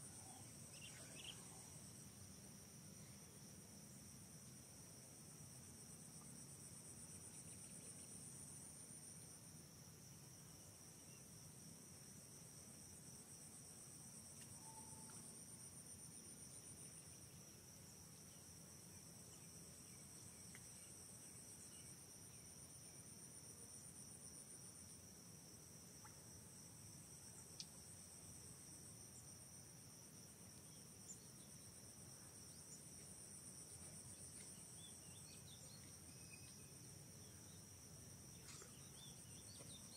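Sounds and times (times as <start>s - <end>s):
insect chorus trilling: 0.0s - 2.0s, 14.5s - 17.5s.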